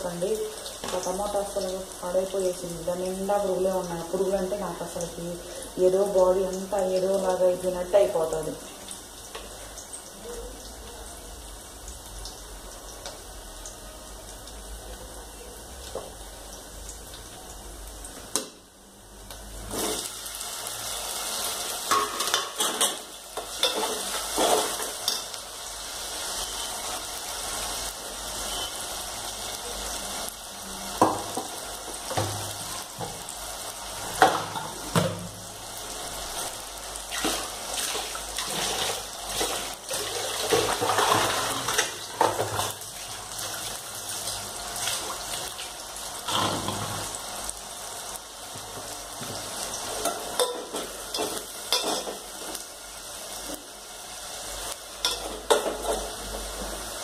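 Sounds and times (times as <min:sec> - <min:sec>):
dishes and utensils clinking: 0:21.9 - 0:25.4, 0:50.0 - 0:52.2, 0:55.0 - 0:56.1.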